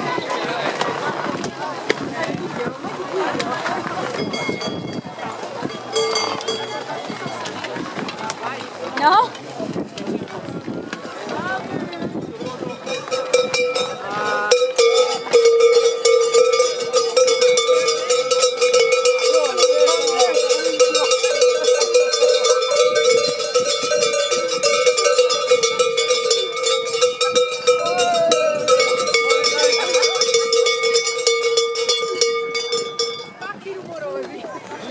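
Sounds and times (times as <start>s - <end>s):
faint crowd voices: 0.0s - 34.9s
cowbell shaken rapidly: 4.0s - 7.5s, 12.1s - 33.6s.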